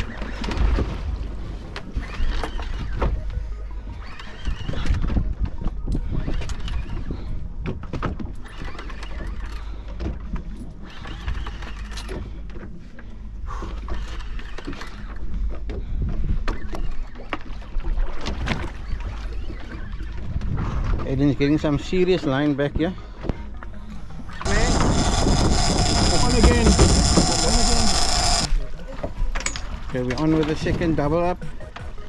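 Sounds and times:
boat low rumble: 0.0s - 32.0s
water noise: 23.6s - 29.0s.

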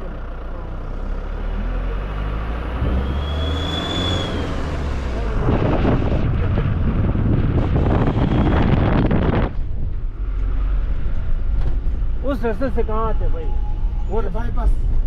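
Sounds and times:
car engine and road noise: 0.0s - 15.0s
wind rushing over microphone: 2.8s - 10.3s
brief high squeal: 3.1s - 4.7s, 12.8s - 14.5s.

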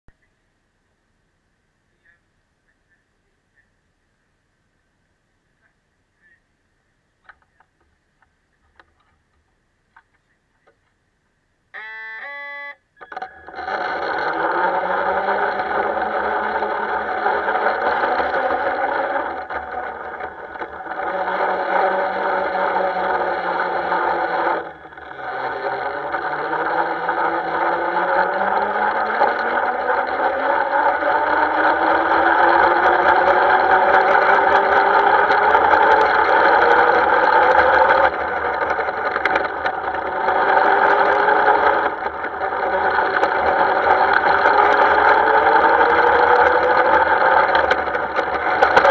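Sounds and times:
miniature locomotive pulling away: 13.0s - 48.9s.

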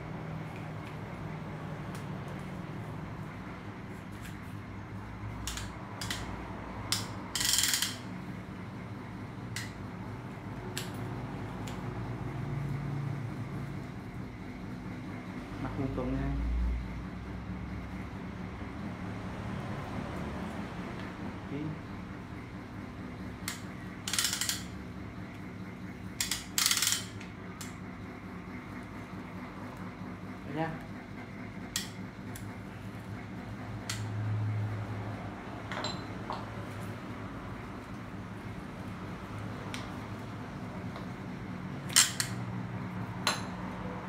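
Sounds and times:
clamp ratchet clicking: 6.9s - 8.1s, 23.4s - 24.8s, 26.2s - 27.8s.

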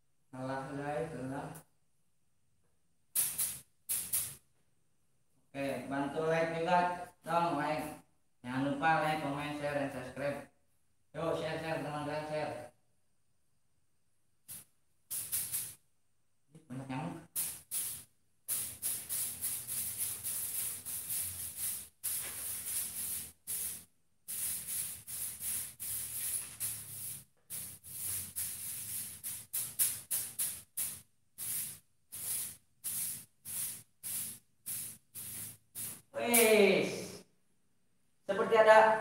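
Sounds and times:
hissing noise: 17.4s - 37.3s.

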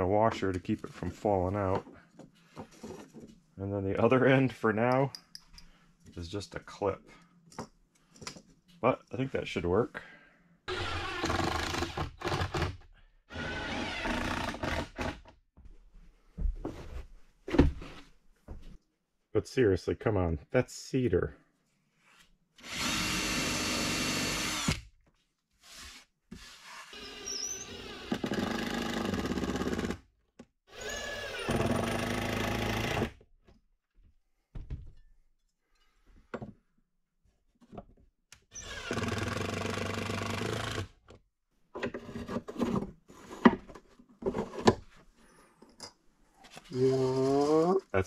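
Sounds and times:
cordless drill driving screws: 10.7s - 12.6s, 13.3s - 15.2s, 22.6s - 24.8s, 26.9s - 30.0s, 30.7s - 33.1s, 38.5s - 40.9s.

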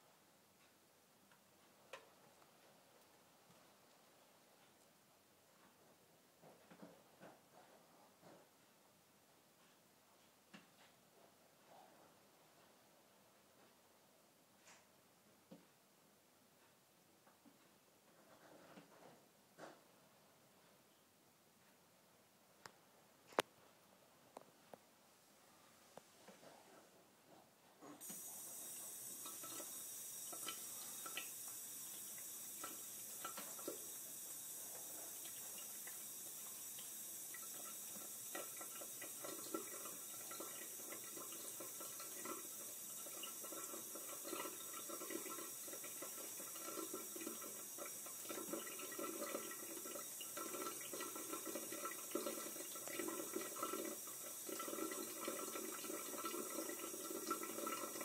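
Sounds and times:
water trickling into a steel sink: 28.0s - 58.0s.

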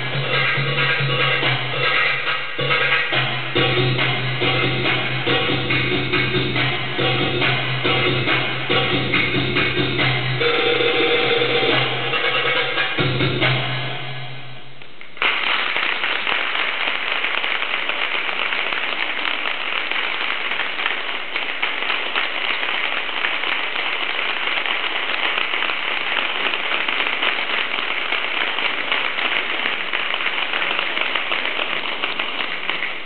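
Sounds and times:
audience applauding: 15.0s - 33.0s.

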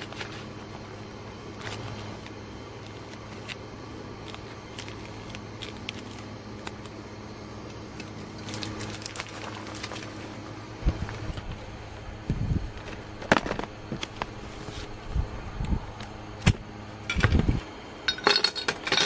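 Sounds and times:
paper filter bag rustling: 0.0s - 7.0s, 8.0s - 11.6s
steady low hum: 0.0s - 19.0s.

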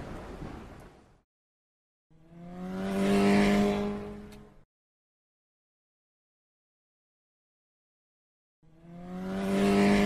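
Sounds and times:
engine revving up: 2.1s - 4.6s, 8.6s - 10.0s.

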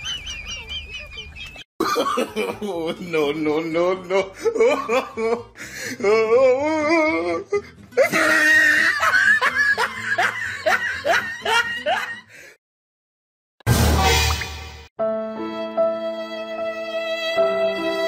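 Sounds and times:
person laughing: 0.0s - 12.3s.

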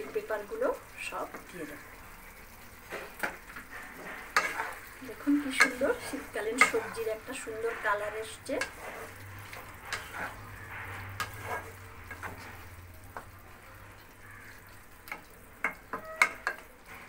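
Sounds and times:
food sizzling in a wok: 0.0s - 17.0s
spatula scraping pan: 2.6s - 17.0s
spatula knocking on pan: 5.6s - 5.9s, 15.1s - 16.7s.

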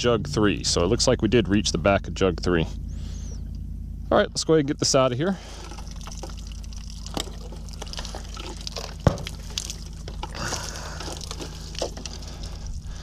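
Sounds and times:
water splashing and dripping: 5.5s - 12.8s
plastic jugs clicking and knocking: 7.0s - 12.3s.

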